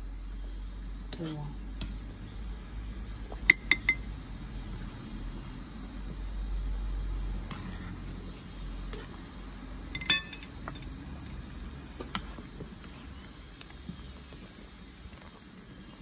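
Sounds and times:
pot boiling hard: 0.0s - 16.0s
metal skimmer clinking on pot: 3.5s - 4.0s, 10.0s - 11.4s.

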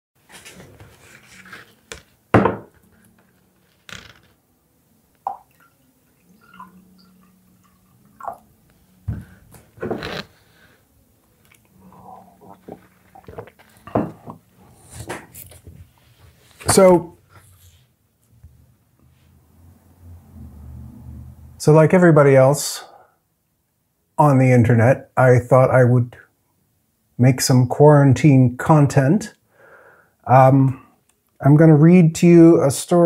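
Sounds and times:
microphone handling knocks and rustles: 9.1s - 10.3s.

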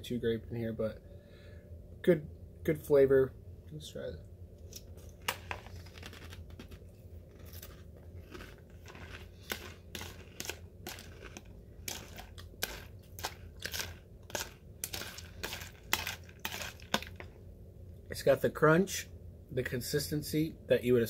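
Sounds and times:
person chewing crunchy cereal: 4.8s - 17.3s.

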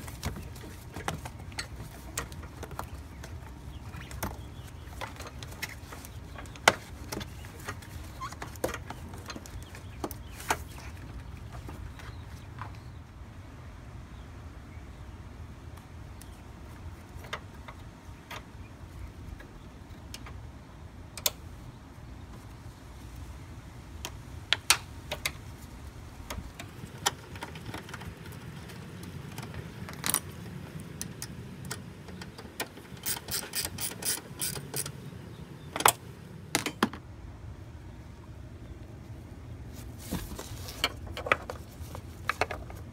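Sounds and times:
ratchet clicking: 33.0s - 35.0s.

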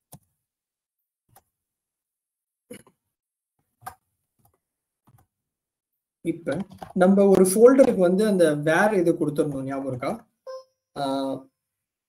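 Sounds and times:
keyboard and mouse clicks: 3.7s - 5.3s, 6.5s - 8.0s.

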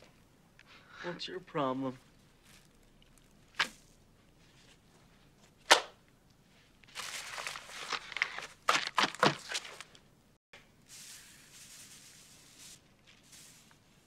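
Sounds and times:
wrappings rustling and crinkling: 1.9s - 5.6s, 6.4s - 10.1s, 10.8s - 14.0s
paper tube crackling: 6.8s - 10.0s, 10.9s - 14.0s.

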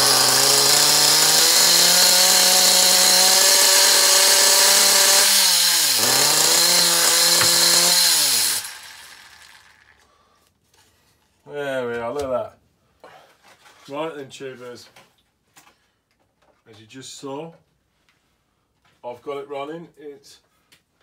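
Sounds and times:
small nitro engine running: 0.0s - 9.9s.

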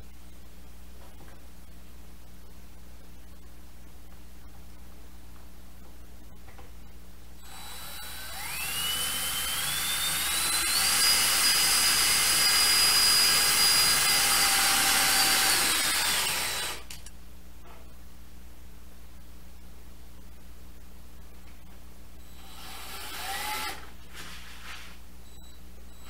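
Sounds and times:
cordless drill motor whine: 7.4s - 17.0s, 22.2s - 23.9s.

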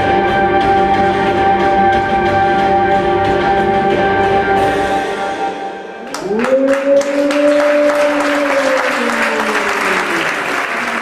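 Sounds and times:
long howl: 6.1s - 10.1s
audience applause: 6.1s - 11.0s.

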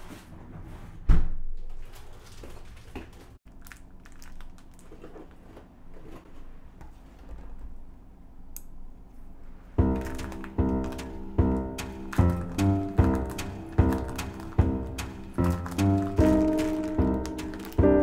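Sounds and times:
plastic pack crinkling: 3.5s - 5.2s, 9.9s - 18.0s.

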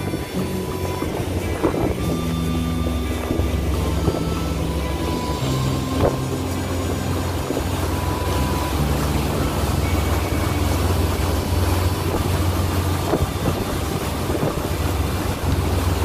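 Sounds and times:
motorboat engine rumbling: 0.0s - 16.0s
water rushing past hull: 0.0s - 16.0s
wind buffeting microphone: 0.0s - 16.0s.

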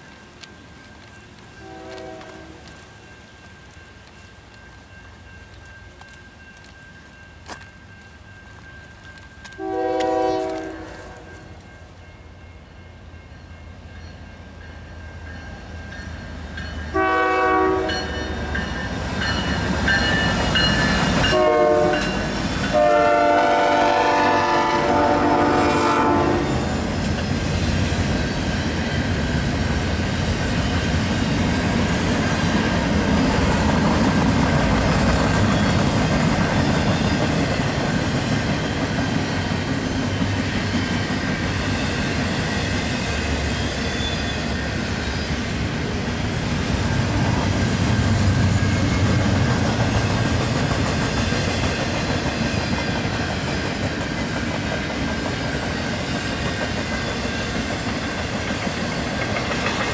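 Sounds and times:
train rumble: 0.0s - 59.9s
train air horn blasts: 1.6s - 2.7s, 9.6s - 11.6s, 16.9s - 18.5s, 21.2s - 26.8s
wheels clattering on rail: 17.8s - 23.4s, 46.8s - 59.9s.

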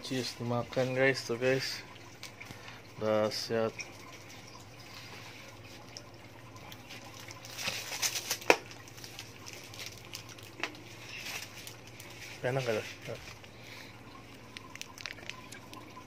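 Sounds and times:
wrapper crackling: 7.0s - 13.6s, 14.3s - 15.9s.

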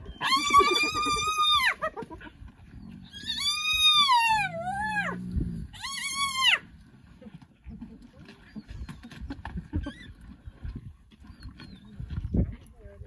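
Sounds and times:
hyena whining squeals: 0.0s - 1.8s, 2.9s - 6.6s
low growl: 2.8s - 6.0s.

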